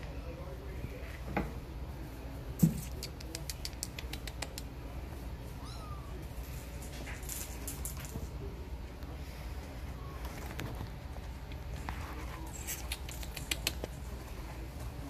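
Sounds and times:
kitten claws clicking on fabric: 0:02.6 - 0:04.7, 0:12.4 - 0:14.0.

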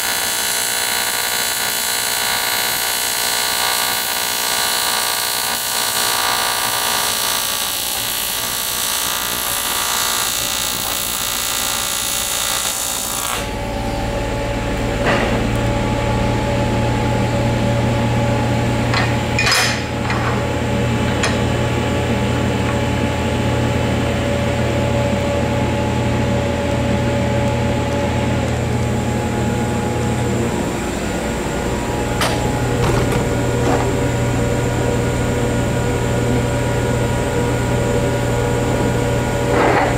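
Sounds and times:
welding arc buzzing: 0:00.0 - 0:38.7
steady low hum: 0:13.5 - 0:39.5.

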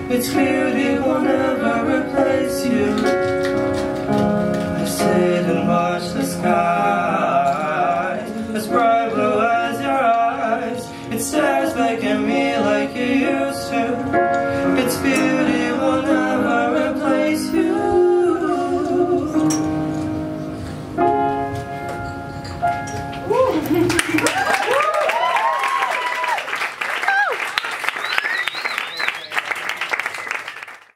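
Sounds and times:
voices singing a slow ballad: 0:00.0 - 0:20.6
piano accompaniment: 0:00.0 - 0:25.6.

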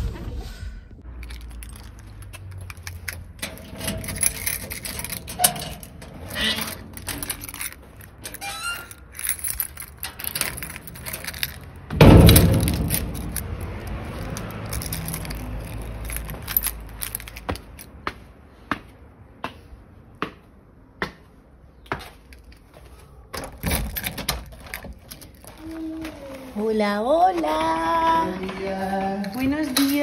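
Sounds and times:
metal gate slamming shut: 0:02.7 - 0:15.4
footsteps on concrete: 0:17.4 - 0:23.4, 0:25.5 - 0:30.0.

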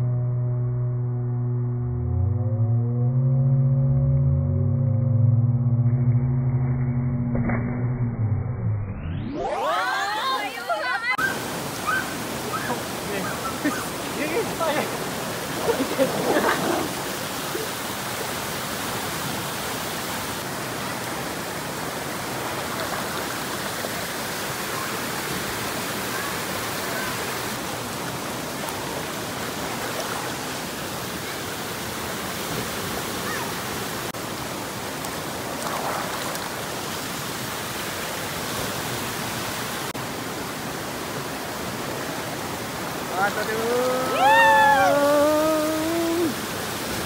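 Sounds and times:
waterfall rushing: 0:09.4 - 0:47.0
water splashing into pool: 0:14.9 - 0:39.1.

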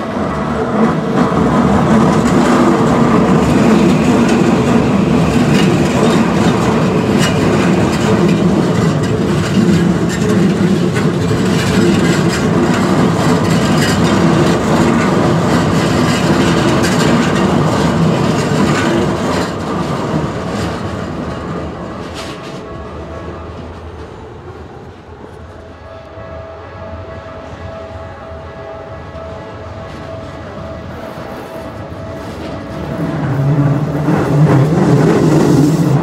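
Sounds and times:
train wheels clattering over rail joints: 0:00.7 - 0:22.7
level crossing warning bell: 0:25.7 - 0:34.0.

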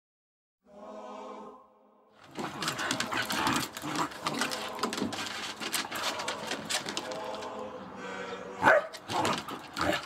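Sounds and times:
dogs growling while play-fighting: 0:02.2 - 0:06.8, 0:09.0 - 0:10.0.

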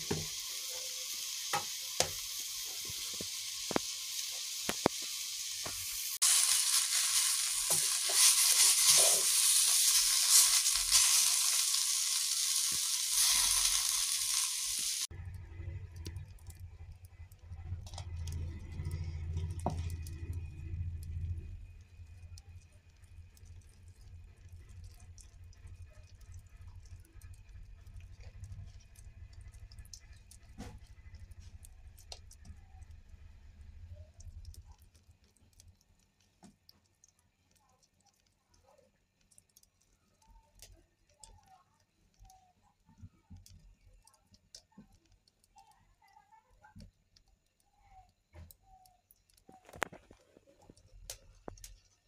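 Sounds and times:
faint clicks: 0:33.9 - 0:52.0.

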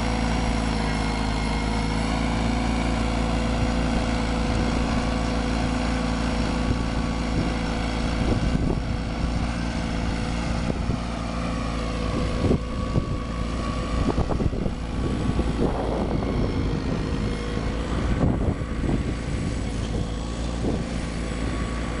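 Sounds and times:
garden tractor engine running: 0:00.0 - 0:22.0
tiller churning soil: 0:00.0 - 0:22.0.

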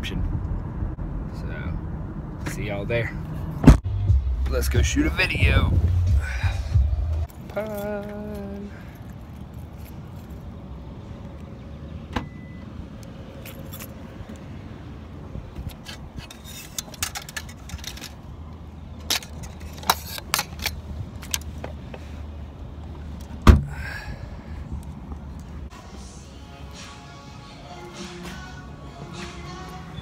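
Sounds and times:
steady low rumble: 0:00.0 - 0:16.2
car hatch thudding shut: 0:23.4 - 0:23.8.

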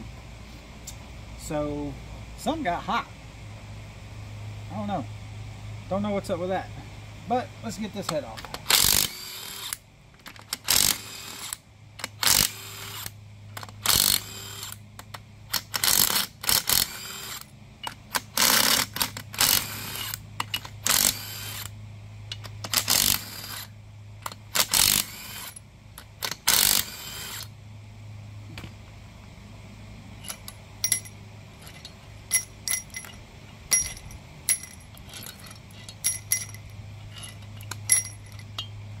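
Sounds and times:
cordless drill spinning bolts: 0:08.4 - 0:14.8, 0:15.5 - 0:21.7, 0:22.3 - 0:27.5, 0:30.2 - 0:38.7.

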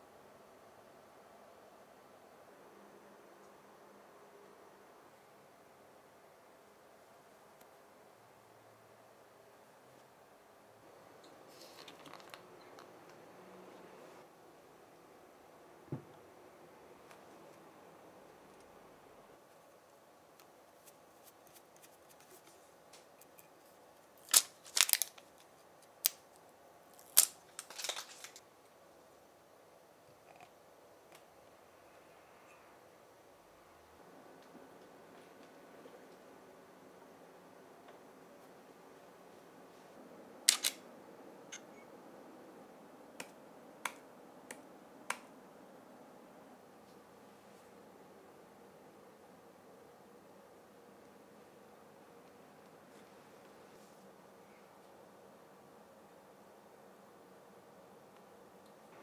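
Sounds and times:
camera shutter clicks: 0:40.5 - 0:40.8.

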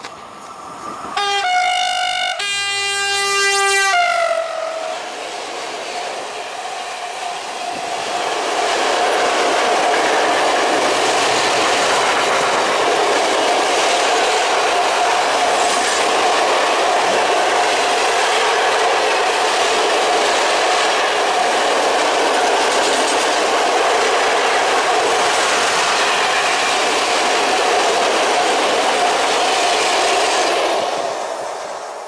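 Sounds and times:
train wheels on rails: 0:00.0 - 0:32.0
locomotive horn blast: 0:01.2 - 0:05.0.

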